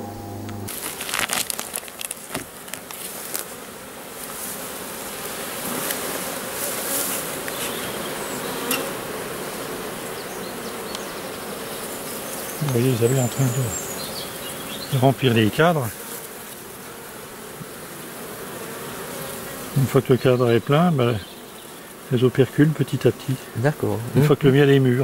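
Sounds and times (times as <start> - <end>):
honeybees buzzing: 0.0 - 25.0
clicks and rustles of cloth: 0.7 - 3.6.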